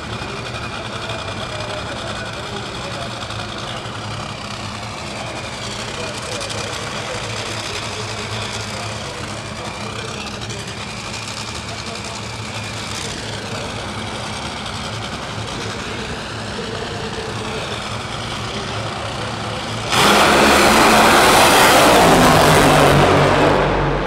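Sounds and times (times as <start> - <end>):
dragster engines running: 0.0 - 24.0
dragster full-throttle launch: 11.5 - 24.0.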